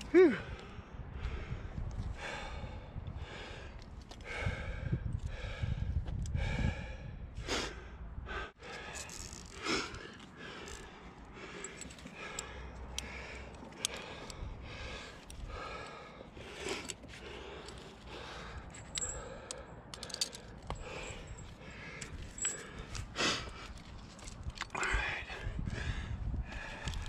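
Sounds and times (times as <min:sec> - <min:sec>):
person breathing heavily: 0:00.1 - 0:27.0
carabiners clinking: 0:08.6 - 0:25.2.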